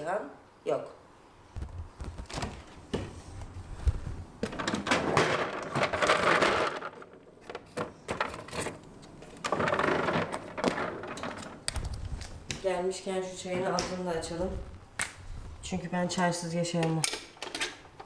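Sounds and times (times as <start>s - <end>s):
knocks and clicks of plastic trays: 9.4s - 11.9s.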